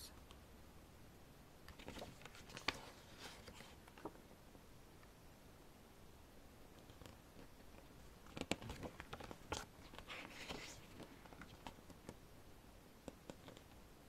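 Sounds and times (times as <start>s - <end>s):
pages rustling: 1.7s - 4.2s, 6.7s - 12.2s.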